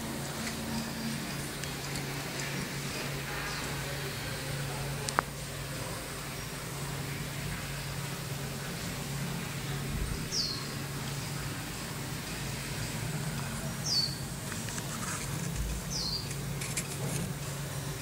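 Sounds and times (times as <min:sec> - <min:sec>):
steady low hum: 0:00.0 - 0:18.0
small bird chirping: 0:10.3 - 0:10.7, 0:13.8 - 0:14.2, 0:15.9 - 0:16.4.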